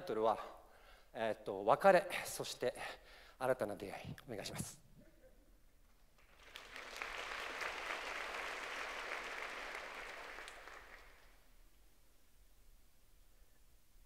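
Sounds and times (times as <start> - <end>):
audience applauding: 6.2 - 11.5.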